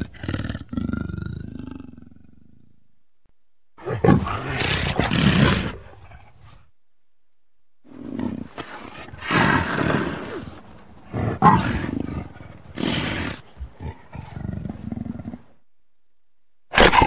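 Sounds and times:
big cat growling: 0:00.0 - 0:02.6, 0:03.8 - 0:06.6, 0:07.9 - 0:15.6
big cat snarling and roaring: 0:03.8 - 0:06.6, 0:07.9 - 0:15.6.

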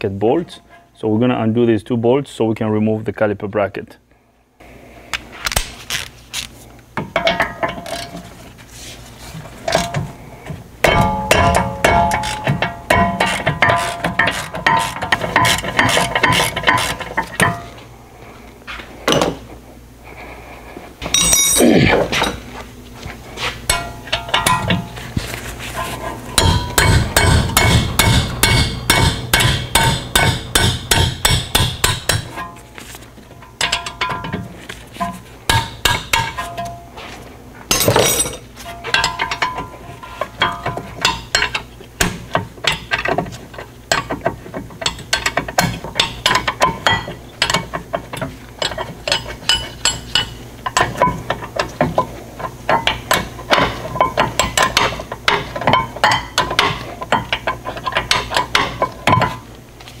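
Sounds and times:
metal tool clinking: 0:21.0 - 0:22.4, 0:37.7 - 0:41.7.

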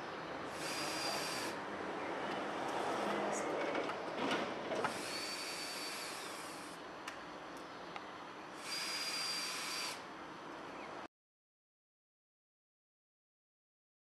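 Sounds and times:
cordless screwdriver whining: 0:00.5 - 0:01.6, 0:04.9 - 0:06.8, 0:08.6 - 0:10.0.

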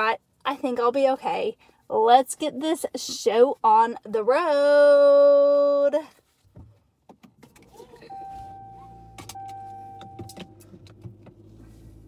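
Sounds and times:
car engine starting and idling: 0:07.2 - 0:12.0
car chime beeps: 0:07.9 - 0:10.7.

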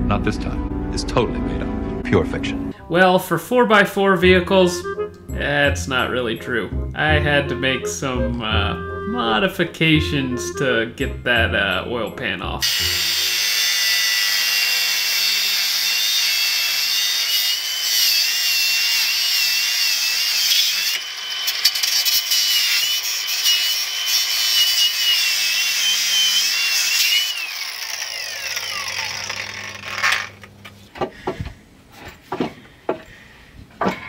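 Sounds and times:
power tool motor whine: 0:12.6 - 0:30.6.

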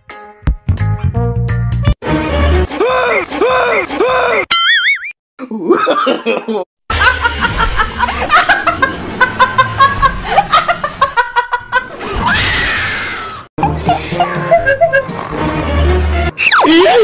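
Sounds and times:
music: 0:00.0 - 0:02.8, 0:13.6 - 0:17.0
snickering laughter: 0:05.6 - 0:12.2, 0:13.6 - 0:15.4.

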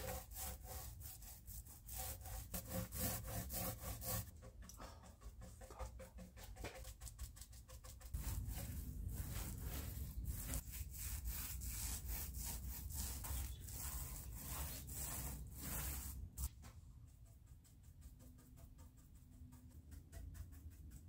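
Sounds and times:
paint brush scrubbing: 0:00.0 - 0:21.0
paint roller rolling on wood: 0:08.1 - 0:21.0.

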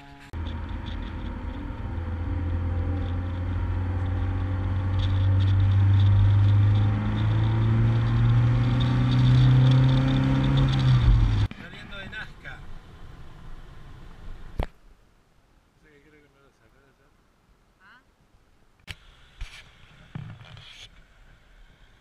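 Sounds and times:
car engine and road hum: 0:00.0 - 0:15.2.

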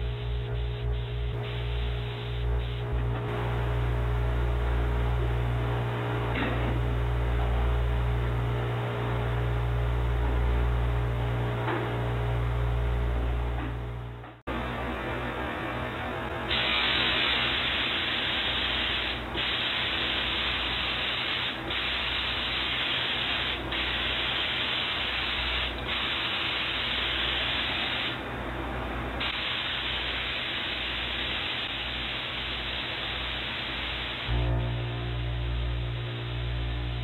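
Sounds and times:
paint spray gun hissing: 0:00.0 - 0:02.9, 0:16.5 - 0:28.2, 0:29.2 - 0:34.3
steady low hum: 0:00.0 - 0:37.0.

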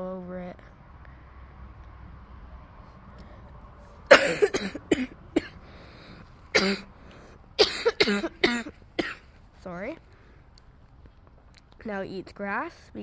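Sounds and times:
person coughing: 0:04.1 - 0:05.6, 0:06.5 - 0:06.9, 0:07.6 - 0:09.3.

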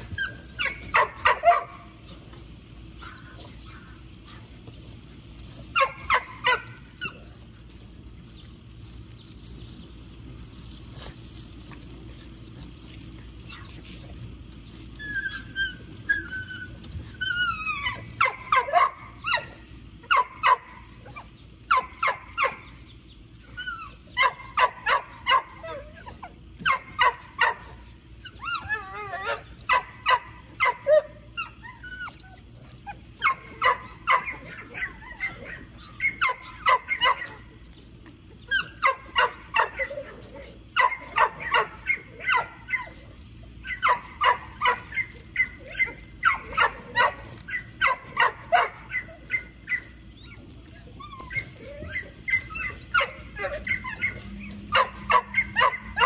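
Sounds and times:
dog whining: 0:00.0 - 0:04.5, 0:13.4 - 0:22.7, 0:23.4 - 0:56.0
dog barking: 0:00.6 - 0:01.8, 0:52.3 - 0:56.0.

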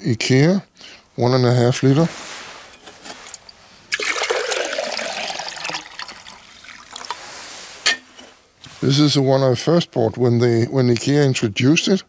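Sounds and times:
water pouring into glass jug: 0:03.2 - 0:07.5.

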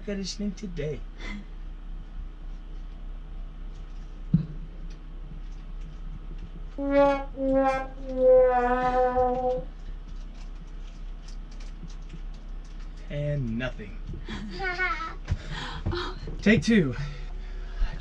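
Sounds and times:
sad trombone notes: 0:06.8 - 0:09.6.

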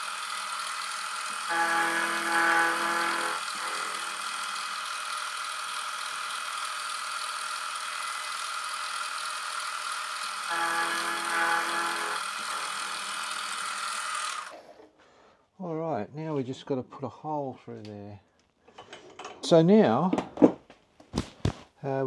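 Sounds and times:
milling machine spindle running: 0:00.0 - 0:14.6
end mill cutting metal ringing: 0:10.5 - 0:12.8.

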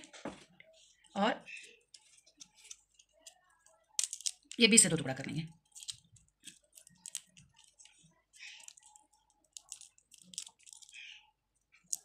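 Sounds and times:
garlic skins crackling: 0:04.0 - 0:04.9, 0:05.7 - 0:11.2.

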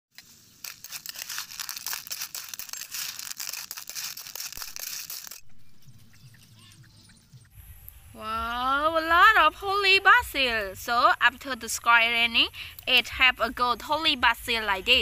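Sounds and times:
shellfish sizzling in a frying pan: 0:00.2 - 0:05.4
spatula clicking on shells: 0:00.6 - 0:05.4
faint chirps: 0:05.5 - 0:08.2.

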